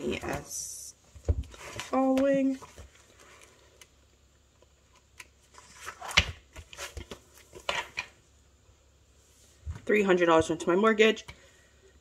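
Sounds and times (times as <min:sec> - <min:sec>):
paper pages rustling: 0:05.2 - 0:08.0.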